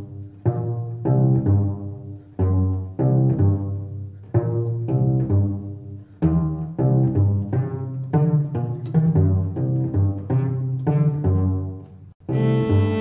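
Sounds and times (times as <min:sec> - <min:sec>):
low strings playing short notes: 0:12.2 - 0:13.0.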